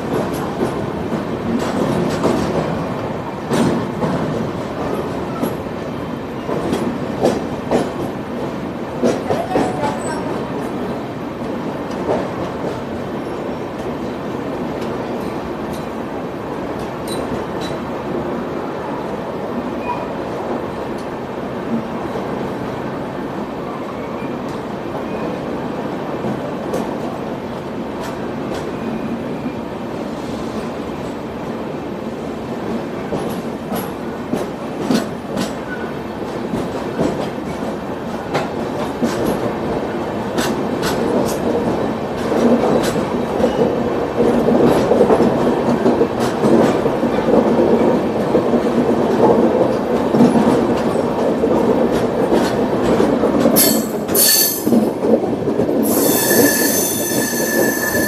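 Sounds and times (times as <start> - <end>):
train wheels rumbling on track: 0.0 - 58.0
high-pitched wheel squeal: 55.9 - 58.0.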